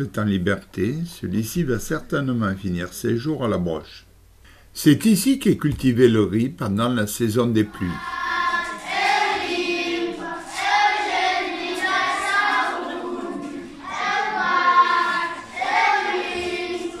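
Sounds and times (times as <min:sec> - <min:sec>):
group of voices singing: 0:07.7 - 0:17.0.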